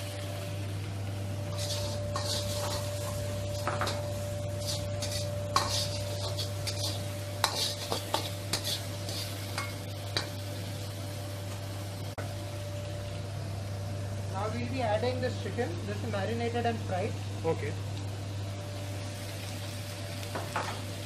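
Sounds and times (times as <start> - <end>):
constant low hum: 0.0 - 21.0
hot oil sizzling: 0.0 - 21.0
ladle scraping and clanking on wok: 1.5 - 10.3.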